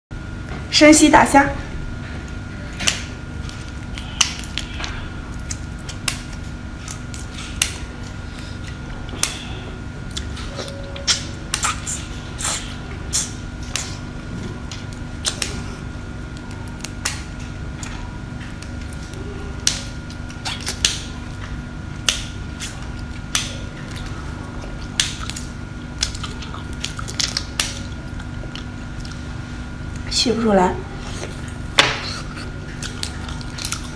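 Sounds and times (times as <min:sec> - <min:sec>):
steady background hum: 0:00.1 - 0:33.9
shrimp shells cracking while eating: 0:02.8 - 0:09.5, 0:14.7 - 0:15.6, 0:16.2 - 0:29.2, 0:31.4 - 0:33.9.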